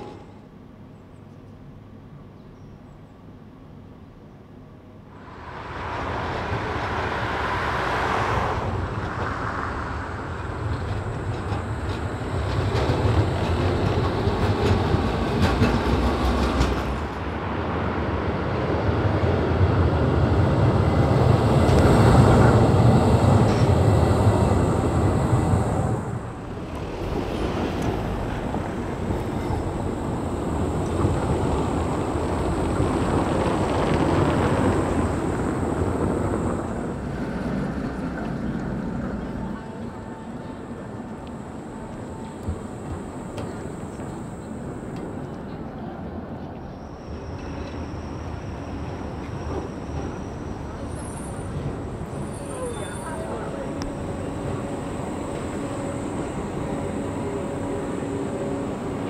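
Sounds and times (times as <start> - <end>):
tram wheels rumbling on rails: 4.8 - 59.0
faint high whine: 19.5 - 38.3, 39.0 - 59.0.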